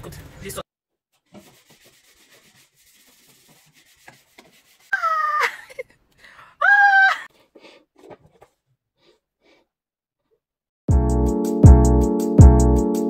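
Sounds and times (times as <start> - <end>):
child squealing: 4.9 - 5.8, 6.6 - 7.3.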